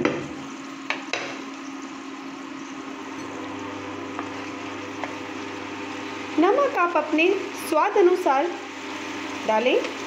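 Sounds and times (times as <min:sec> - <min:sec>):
faint frying: 0:00.0 - 0:10.0
induction cooktop hum: 0:00.0 - 0:10.0.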